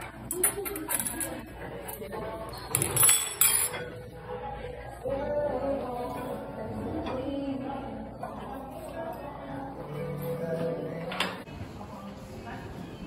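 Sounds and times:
cutlery clinking on dishes: 0.0 - 4.1, 11.0 - 11.5.

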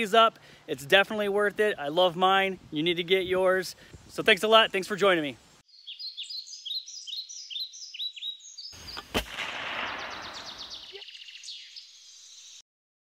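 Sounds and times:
birds singing sliding chirps: 3.8 - 12.6
loud bang: 9.1 - 11.0.

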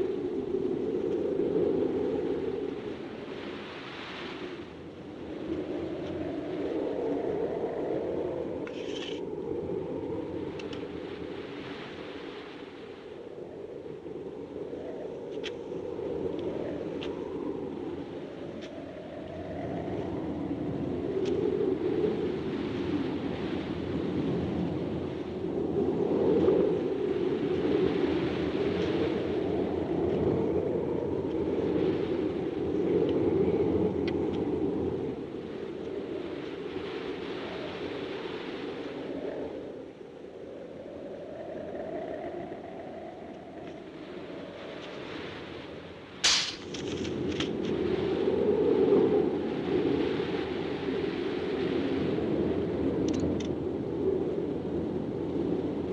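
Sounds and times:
strong wind gusting: 0.0 - 55.9
faint clicks: 8.6 - 9.2, 10.5 - 10.9, 53.0 - 53.6.

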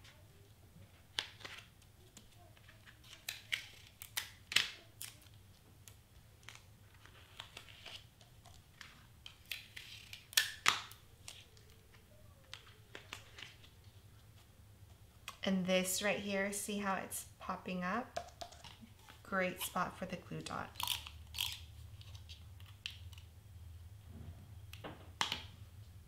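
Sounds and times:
hands handling paper and tape: 0.9 - 15.5.

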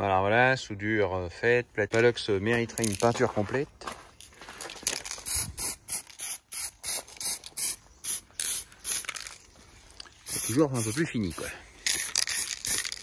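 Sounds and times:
spray paint can hissing: 5.0 - 9.5, 10.2 - 13.0.

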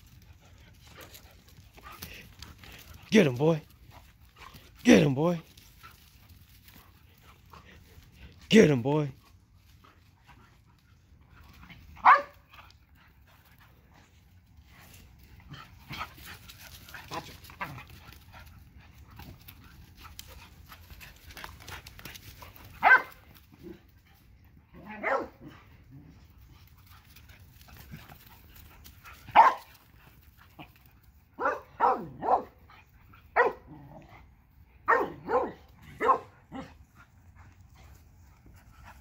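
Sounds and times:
dogs barking: 12.0 - 12.5, 22.7 - 23.3, 24.8 - 25.5, 29.2 - 29.7, 31.4 - 32.6, 33.3 - 33.8, 34.8 - 36.8.

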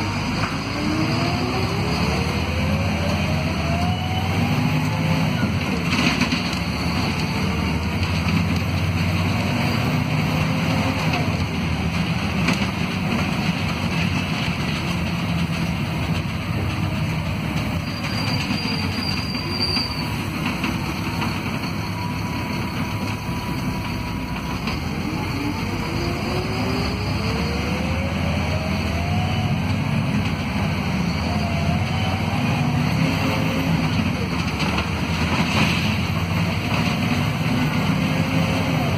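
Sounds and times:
bus engine and road rumble: 0.0 - 38.9
gearbox whine: 17.6 - 38.9.

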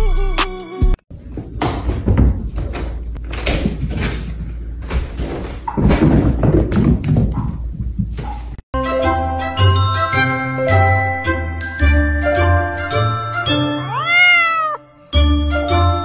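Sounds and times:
knocks and bumps: 1.3 - 8.6.

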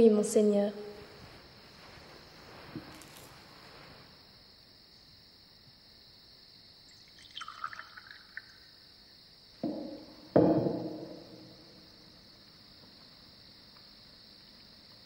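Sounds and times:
sudden knocks: 9.6 - 11.6.

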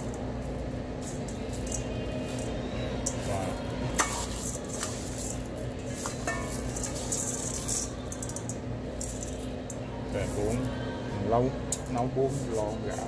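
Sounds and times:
rice grains rustling in metal bowl: 0.9 - 9.5.

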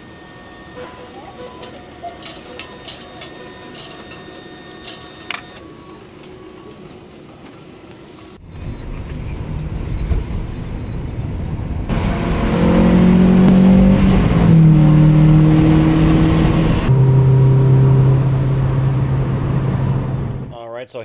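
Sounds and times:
car engine drone: 8.4 - 20.6.

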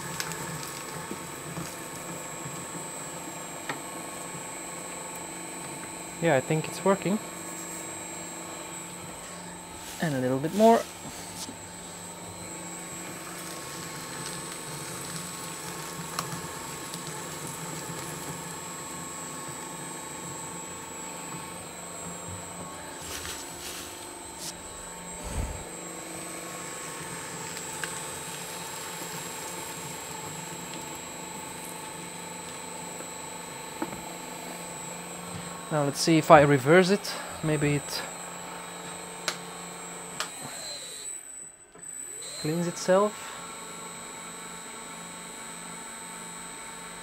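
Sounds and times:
paper shredder motor humming: 0.0 - 47.0.

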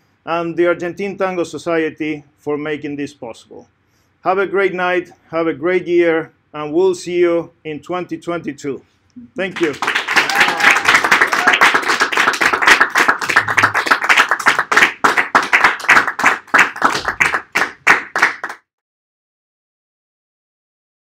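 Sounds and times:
audience applauding: 9.5 - 18.6.

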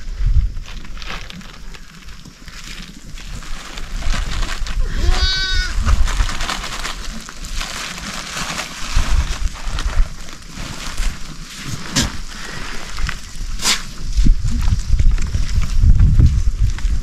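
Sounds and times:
animals rustling and thumping: 0.3 - 17.0
sheep bleating: 4.8 - 5.8.

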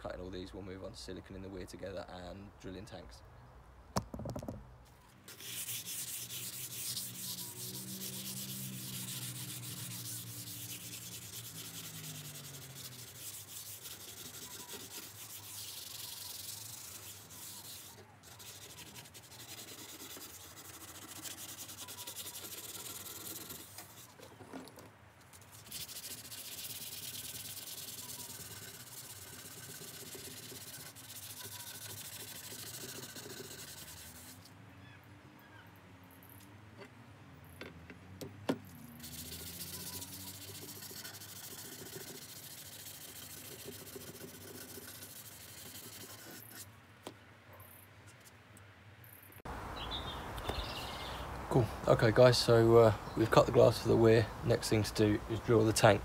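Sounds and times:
abrasive paper rubbing glass edge: 5.3 - 24.2, 25.3 - 34.5, 38.8 - 46.7.

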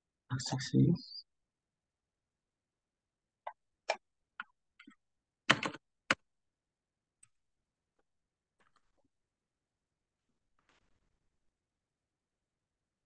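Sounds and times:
computer keyboard keystrokes: 5.5 - 6.2.

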